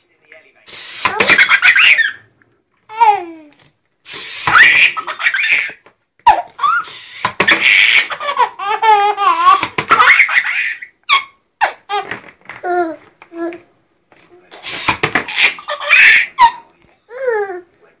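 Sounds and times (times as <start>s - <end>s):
baby laughing: 1.0s - 2.2s, 2.9s - 3.6s, 4.4s - 13.6s, 14.8s - 17.7s.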